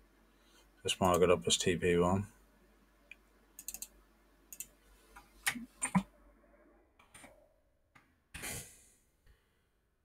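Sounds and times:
computer mouse clicks: 3.1 - 6.1.

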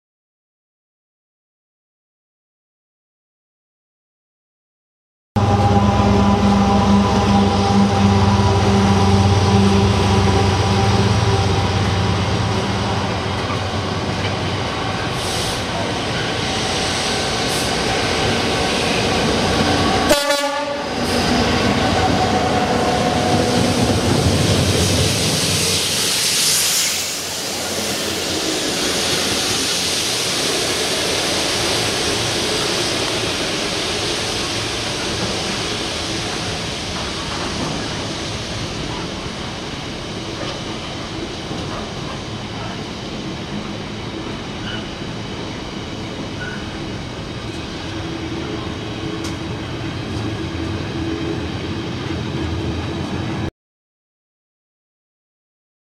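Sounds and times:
locomotive horn: 5.4 - 12.2, 20.1 - 21.0
diesel locomotives passing: 5.4 - 53.5
wheels rumbling on rail: 5.4 - 53.5.

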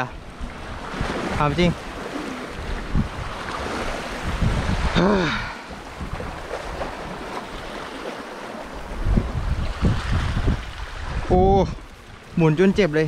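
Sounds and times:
waves splashing against rocks: 0.0 - 13.0
wind rumbling on microphone: 0.0 - 13.0
person exclaiming: 5.0 - 5.6.

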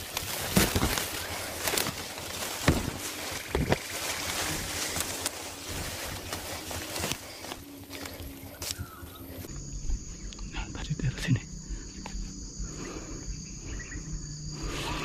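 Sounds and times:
leaves and brush rustling: 0.0 - 10.0
footsteps in undergrowth: 0.0 - 10.2.

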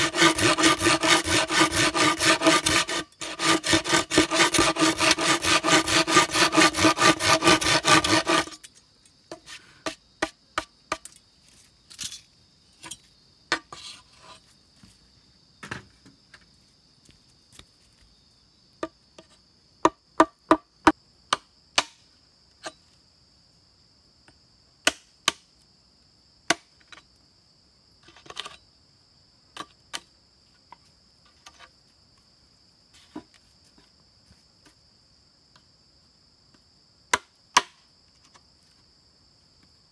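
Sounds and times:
hand saw cutting bamboo: 0.0 - 8.7
machete chopping bamboo: 21.3 - 22.0, 24.8 - 25.5, 26.5 - 26.7, 37.1 - 37.8.

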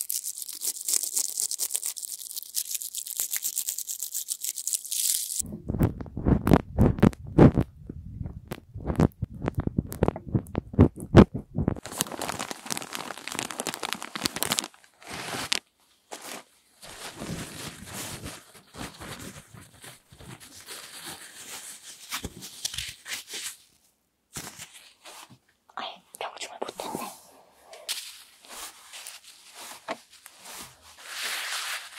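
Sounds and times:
tissue crumpling and rustling: 0.0 - 5.4, 11.7 - 23.6, 27.9 - 31.9
fingers tapping on microphone: 5.4 - 11.8.

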